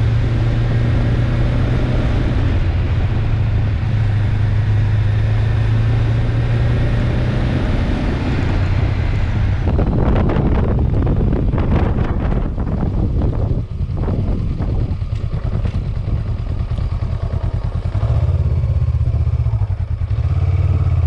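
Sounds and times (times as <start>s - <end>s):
motorcycle engine hum: 0.0s - 21.0s
rushing wind: 0.0s - 21.0s
wind buffeting microphone: 8.2s - 19.7s.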